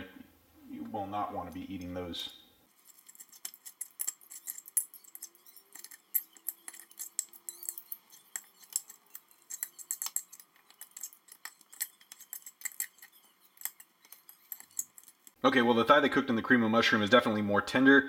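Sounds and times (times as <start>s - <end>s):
fork scraping a ceramic plate: 2.7s - 15.4s.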